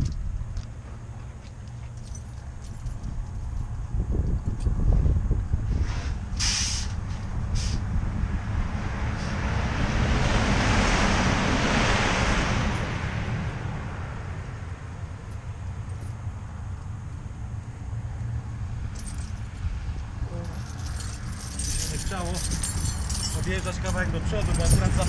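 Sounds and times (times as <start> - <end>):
steady low rumble: 0.0 - 25.0
vehicle passing on highway: 0.0 - 25.0
short hisses: 5.8 - 7.0, 7.6 - 7.8.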